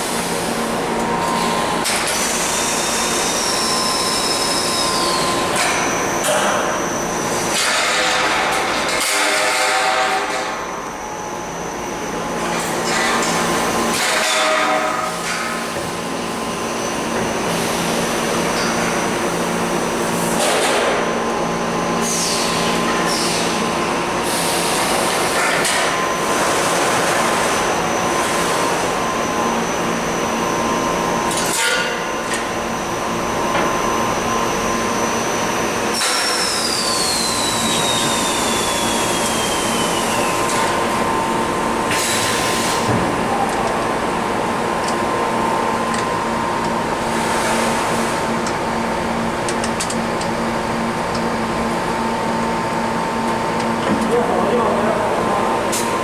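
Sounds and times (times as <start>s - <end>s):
machine humming with high tone: 0.0s - 56.0s
machine whine falling in pitch: 32.6s - 41.9s.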